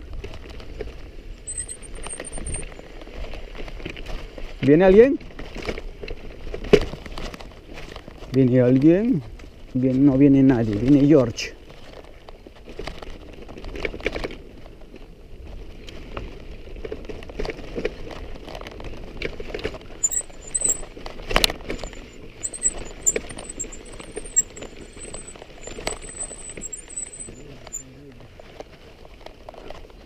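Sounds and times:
bike frame rattling and knocking: 0:01.4 - 0:02.8, 0:17.0 - 0:27.8
high thin chirping: 0:01.5 - 0:02.7, 0:20.0 - 0:20.9, 0:21.8 - 0:27.8
stones crunching under tyres: 0:15.9 - 0:27.8.

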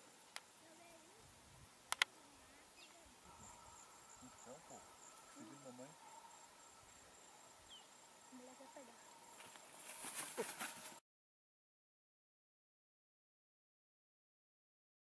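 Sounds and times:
faint insects buzzing: 0:00.0 - 0:11.0
sharp clicks: 0:01.9 - 0:02.1.

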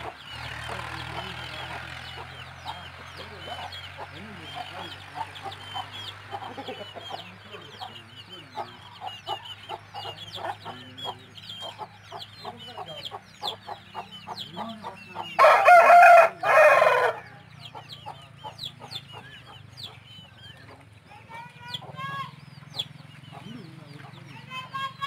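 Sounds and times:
chicks peeping: 0:00.0 - 0:25.0
rooster crowing: 0:15.4 - 0:17.4.

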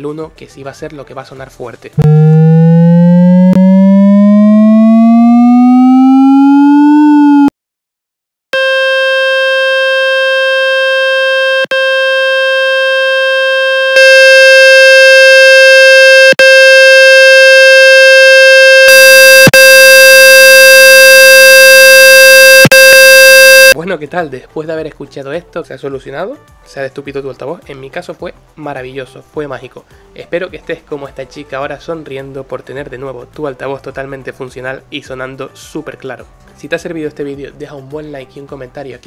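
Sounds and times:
low pulsing synthesized tone: 0:02.0 - 0:07.4
buzzy synthesized tone: 0:02.0 - 0:07.5, 0:08.6 - 0:23.8.

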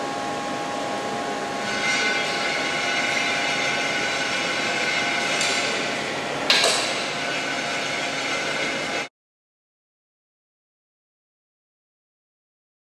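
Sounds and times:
machine hum and whine: 0:00.0 - 0:09.1
sharp metallic clank: 0:06.5 - 0:07.3.

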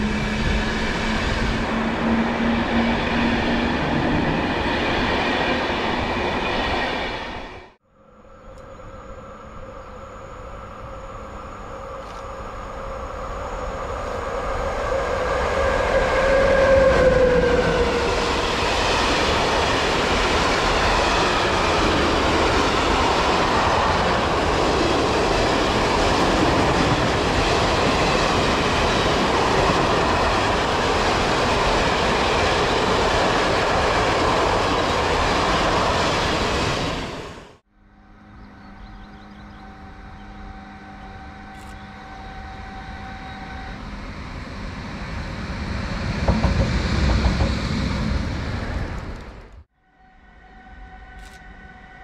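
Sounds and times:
electric train whine: 0:00.0 - 0:52.0
train cars rumbling and clattering: 0:44.8 - 0:49.7.

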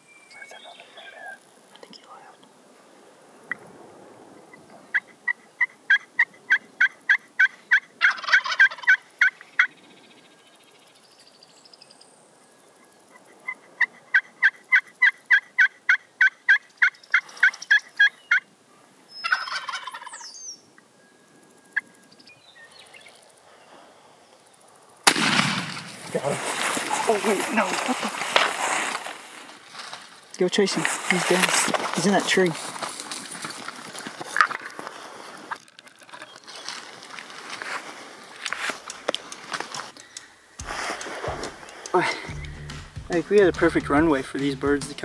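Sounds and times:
turkey gobbling: 0:04.5 - 0:09.8, 0:13.1 - 0:18.5, 0:19.2 - 0:20.3
turkey yelps: 0:04.9 - 0:09.8, 0:13.5 - 0:18.5, 0:19.2 - 0:20.3
shotgun blast: 0:25.0 - 0:26.1.

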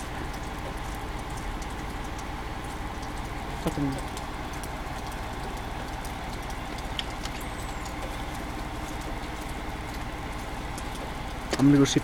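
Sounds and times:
fire truck engine idling: 0:00.0 - 0:12.0
faint clicks: 0:03.0 - 0:10.1.

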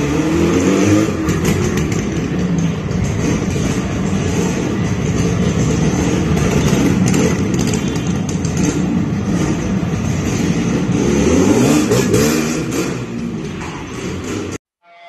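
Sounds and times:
two-stroke motorcycle engine running: 0:01.3 - 0:10.1.

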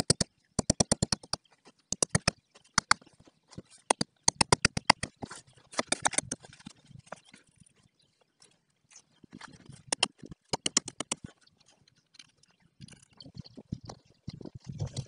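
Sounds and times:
rapid sharp clicking: 0:09.9 - 0:11.2.

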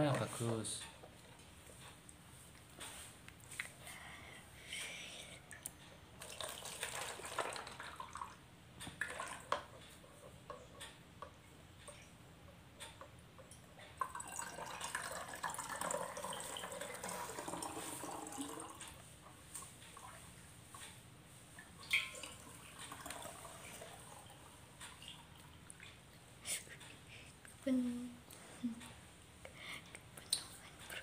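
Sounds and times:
water pouring through a funnel: 0:06.2 - 0:08.4, 0:09.0 - 0:09.7, 0:14.0 - 0:18.9, 0:21.8 - 0:25.5.

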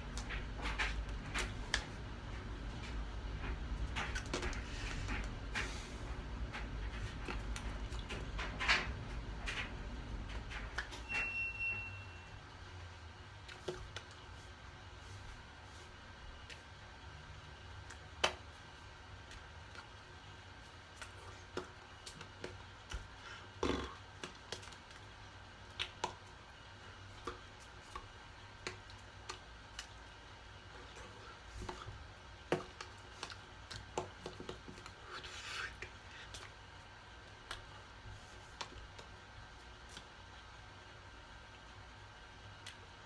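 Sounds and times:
low room hum: 0:00.0 - 0:43.0
hands tapping and rustling: 0:30.9 - 0:35.0.

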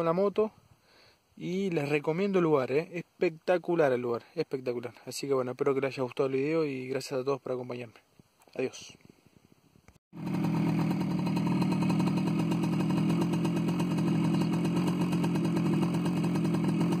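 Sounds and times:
motorcycle engine running: 0:10.2 - 0:17.0.

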